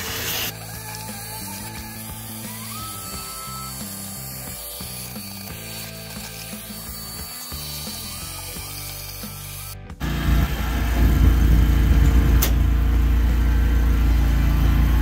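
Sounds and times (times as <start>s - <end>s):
low rumble: 10.0s - 15.0s
wet dry vacuum running: 10.0s - 15.0s.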